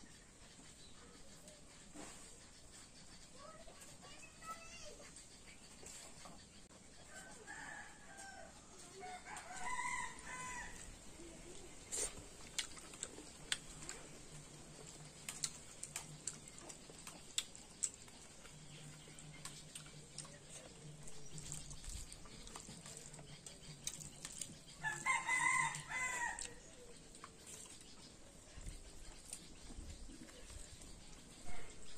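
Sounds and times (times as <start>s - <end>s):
rooster crowing: 7.1s - 10.9s, 24.8s - 26.6s.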